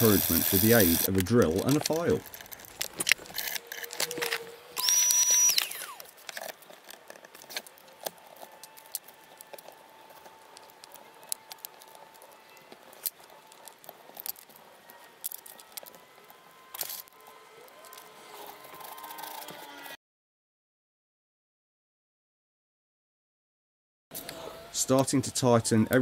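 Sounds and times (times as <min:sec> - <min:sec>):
cordless drill whining: 0:00.0 - 0:01.1, 0:03.4 - 0:06.1.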